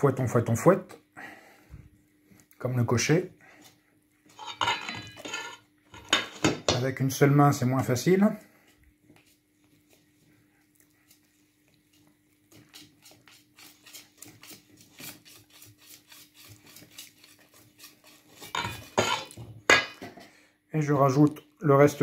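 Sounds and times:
wire whisk beating batter in bowl: 12.5 - 19.4.

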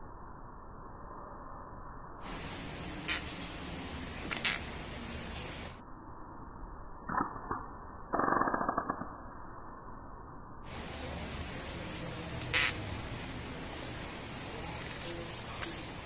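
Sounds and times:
gecko clicking: 2.9 - 5.5, 10.7 - 16.0.

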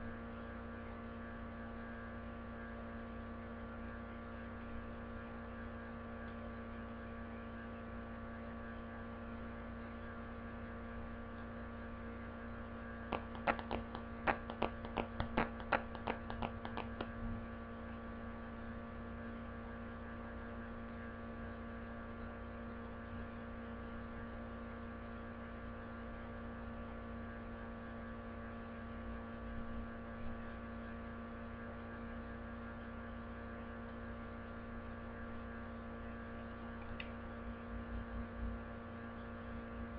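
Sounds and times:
electrical mains hum: 0.0 - 39.9
trading cards clicking and tapping: 13.1 - 17.1.

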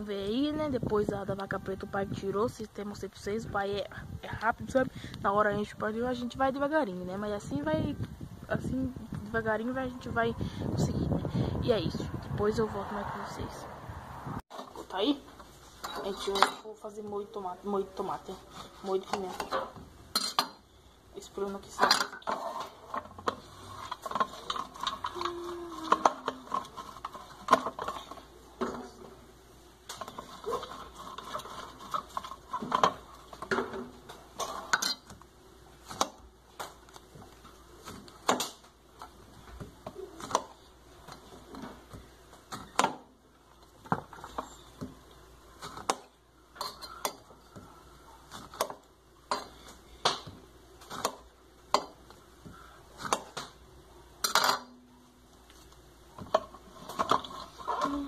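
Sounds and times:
dishes and utensils clinking: 18.8 - 20.6, 46.6 - 47.3, 54.2 - 54.9.

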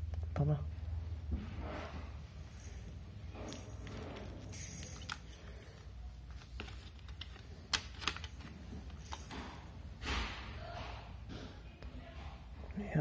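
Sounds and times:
handling small electrical parts: 2.5 - 9.8.

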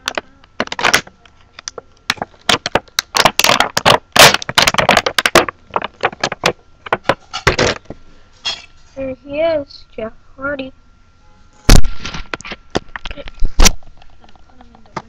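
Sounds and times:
plastic packaging crackling: 0.0 - 7.9.

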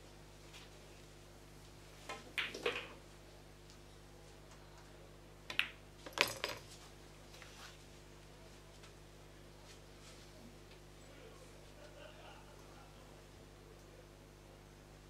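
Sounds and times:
ball dropping into pocket: 2.1 - 3.0, 5.5 - 6.7
pool balls clacking: 2.1 - 3.0, 5.5 - 6.8.

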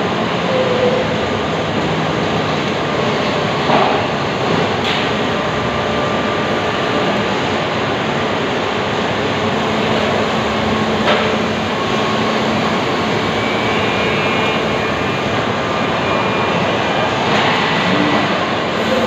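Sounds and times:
factory machinery drone: 0.0 - 19.0.

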